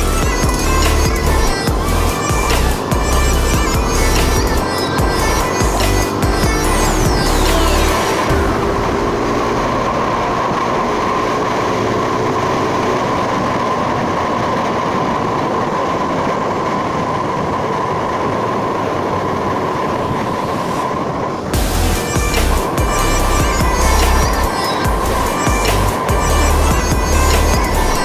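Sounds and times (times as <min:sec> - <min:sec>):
steady tone: 0:00.0 - 0:13.6, 0:19.9 - 0:28.0
motorcycle engine: 0:00.0 - 0:28.0
wind noise: 0:00.0 - 0:28.0.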